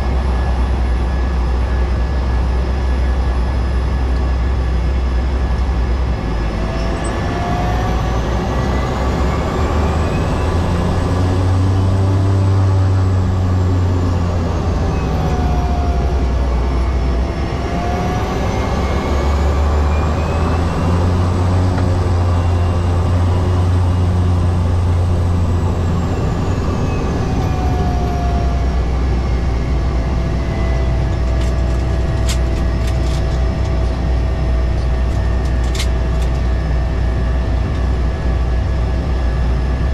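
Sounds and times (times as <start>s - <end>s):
turboprop engine droning: 0.0s - 39.9s.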